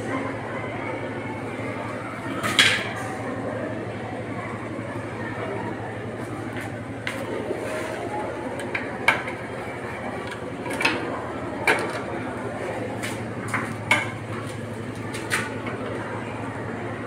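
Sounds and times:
steady low hum: 0:00.0 - 0:17.0
clicks and knocks of tools: 0:10.2 - 0:11.0, 0:11.6 - 0:12.1.

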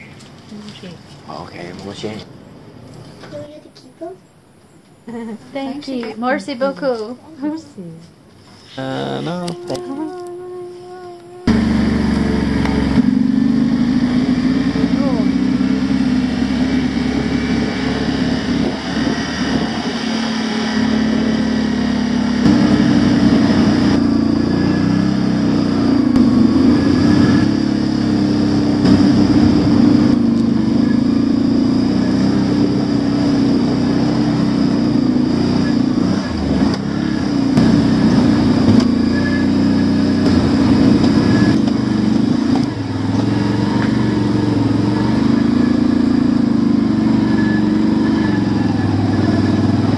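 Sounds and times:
atv engine running: 0:00.0 - 0:49.9.

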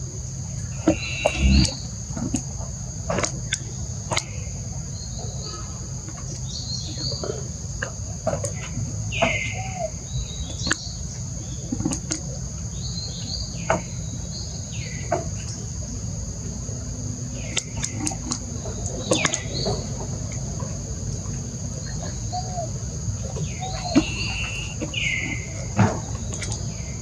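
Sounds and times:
high-pitched insect drone: 0:01.0 - 0:01.9
short chirpy calls: 0:01.0 - 0:01.9
low rumble: 0:01.2 - 0:01.9.

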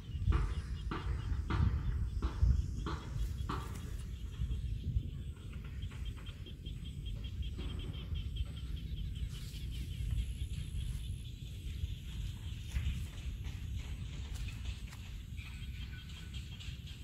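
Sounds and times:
insect chirping: 0:00.0 - 0:17.0
low outdoor rumble: 0:00.0 - 0:17.0.

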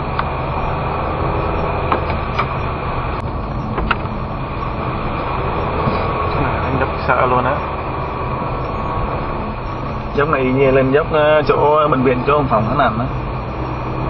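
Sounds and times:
car engine and tyre noise: 0:00.0 - 0:14.0.

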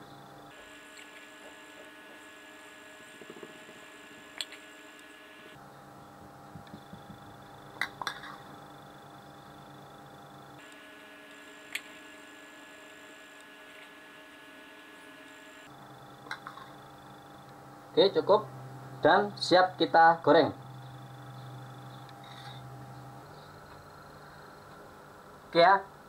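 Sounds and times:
low electrical hum: 0:00.0 - 0:26.0
hand patting taps: 0:06.5 - 0:07.3.

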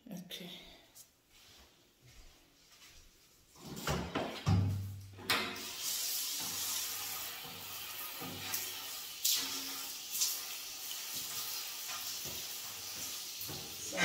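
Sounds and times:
water spraying from shower head: 0:05.6 - 0:14.0.

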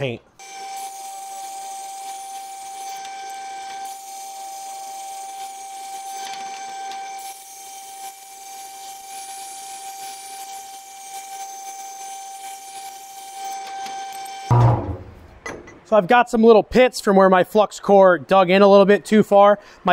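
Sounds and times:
angle grinder grinding steel: 0:00.4 - 0:15.4.

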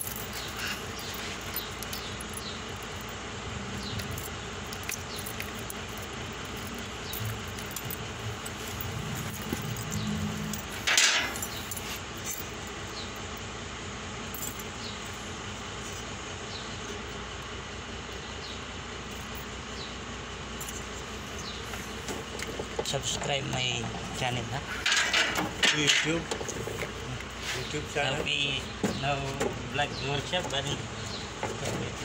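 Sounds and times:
wires rattling and rustling: 0:00.0 - 0:13.2, 0:20.6 - 0:32.0.

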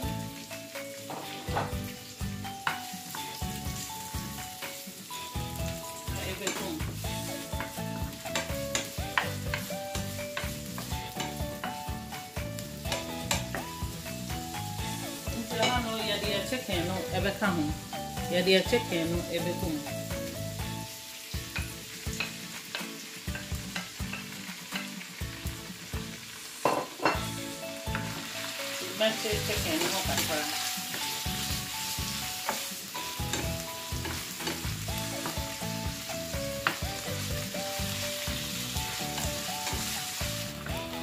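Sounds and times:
chicken and onion sizzling in oil: 0:00.0 - 0:41.0
wooden spatula knocking on pan: 0:01.1 - 0:01.8, 0:07.6 - 0:11.8.

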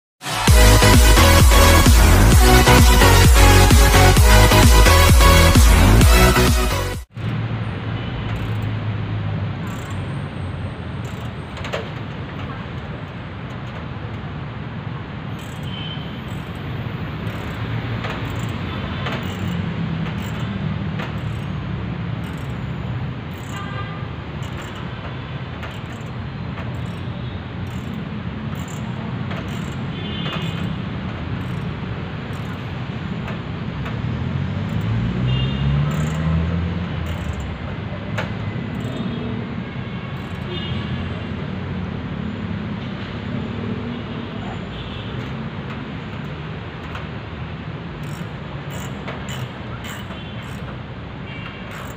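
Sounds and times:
low rumble of road traffic: 0:00.2 - 0:51.9.

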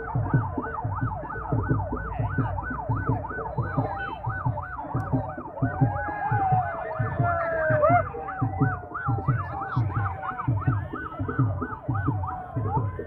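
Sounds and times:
low thumping beat: 0:00.0 - 0:13.0
siren fast yelp: 0:00.0 - 0:13.0.

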